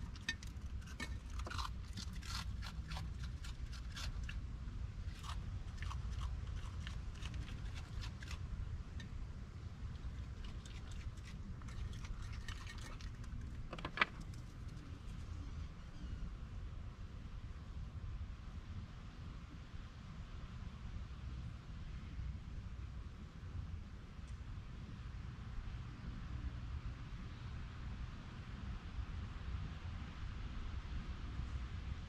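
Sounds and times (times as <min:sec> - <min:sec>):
clicks and scrapes on glass jar: 0:00.0 - 0:04.3, 0:10.0 - 0:14.6
raccoon chewing dry food: 0:00.0 - 0:09.2, 0:09.8 - 0:15.2.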